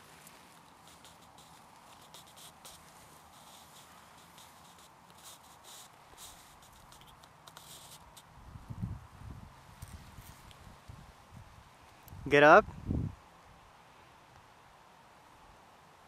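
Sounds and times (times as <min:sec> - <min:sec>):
tall grass rustling: 0:00.0 - 0:12.2.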